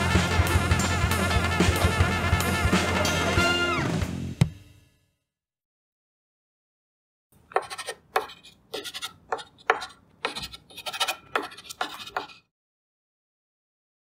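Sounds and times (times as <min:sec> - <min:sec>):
chalk scratching on blackboard: 0:07.5 - 0:12.5.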